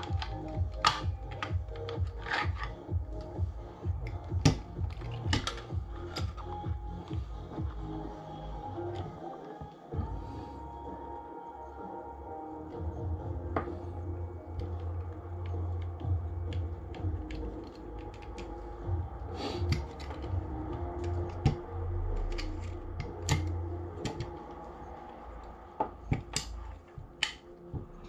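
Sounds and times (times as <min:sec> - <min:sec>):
plastic and metal parts clicking: 0:00.0 - 0:03.3, 0:04.0 - 0:06.6.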